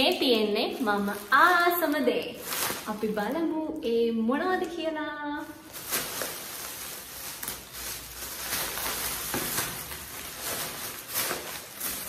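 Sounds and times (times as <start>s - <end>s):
plastic bag rustling: 0.0s - 4.6s, 5.2s - 12.0s.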